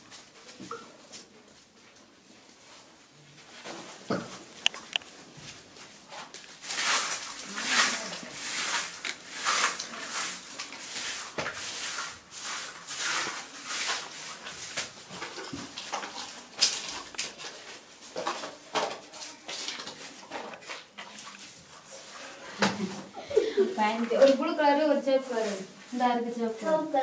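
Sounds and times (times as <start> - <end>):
dry rustling and scraping: 1.3 - 27.0.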